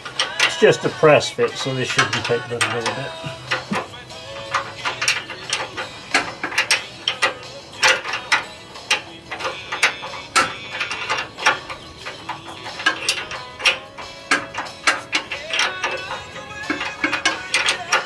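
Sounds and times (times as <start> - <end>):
wrench clicking on nut: 0.0 - 18.0.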